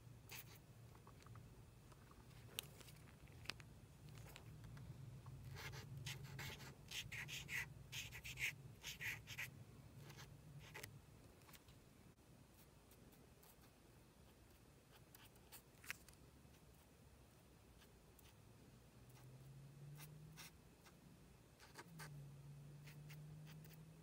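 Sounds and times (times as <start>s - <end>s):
faint low hum: 0.0s - 24.0s
marker pen scratching on card: 0.3s - 0.6s, 5.5s - 10.9s, 22.8s - 23.8s.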